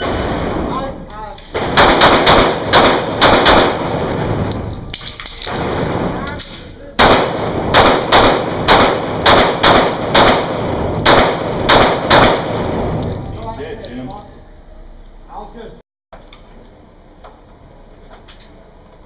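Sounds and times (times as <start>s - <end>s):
pistol shots echoing indoors: 1.5s - 13.5s.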